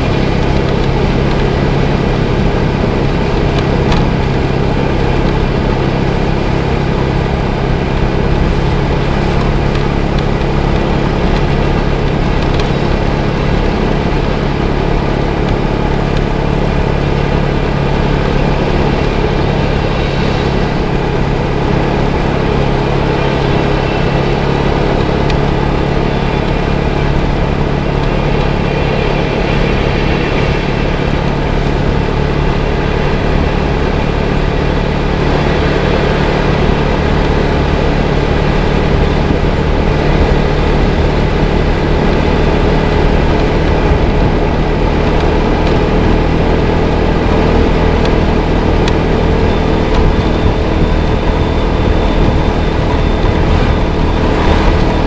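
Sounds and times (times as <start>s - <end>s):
motorcycle engine running: 0.0s - 55.0s
road noise: 0.0s - 55.0s
wind noise: 0.0s - 55.0s.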